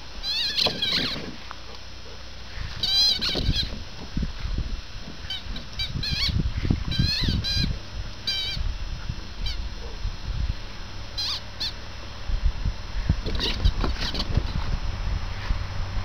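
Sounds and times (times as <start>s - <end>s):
rubber chicken toy squeaking: 0.2s - 1.3s, 2.7s - 3.8s, 5.2s - 8.6s, 11.2s - 11.8s.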